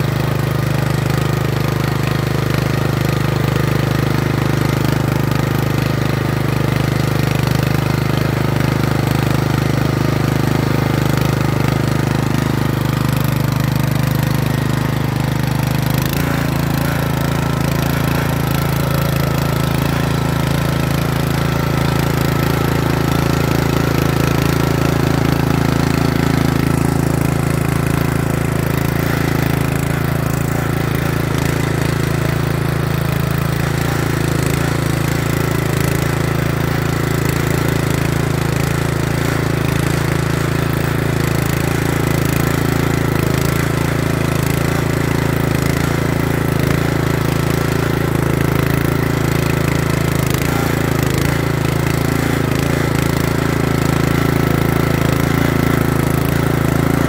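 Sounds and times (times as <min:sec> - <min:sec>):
tiller engine running: 0:00.0 - 0:57.0
tines digging through soil: 0:12.4 - 0:31.7.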